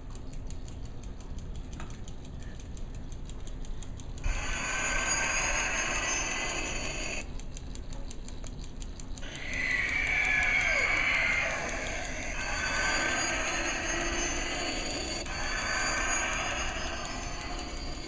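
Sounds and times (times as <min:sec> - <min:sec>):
rapid electronic ticking pulse: 0:00.0 - 0:18.0
whooshing electronic engine noise: 0:09.2 - 0:18.0.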